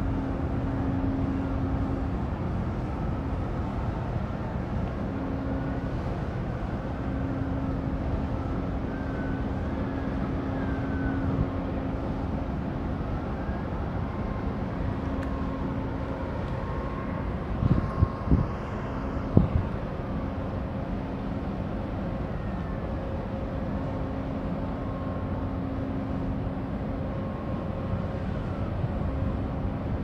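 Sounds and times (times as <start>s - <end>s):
ship machinery rumble and hum: 0.0s - 30.0s
wind buffeting microphone: 13.8s - 20.5s.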